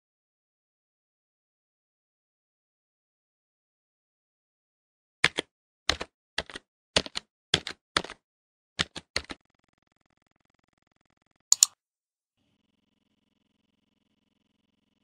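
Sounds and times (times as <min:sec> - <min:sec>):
bright sharp double click: 0:11.5 - 0:11.8
keyboard typing clicks: 0:11.5 - 0:11.8.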